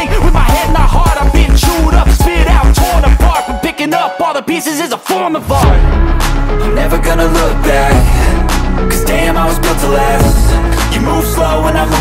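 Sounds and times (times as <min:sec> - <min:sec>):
hip hop beat with heavy bass: 0:00.0 - 0:12.0.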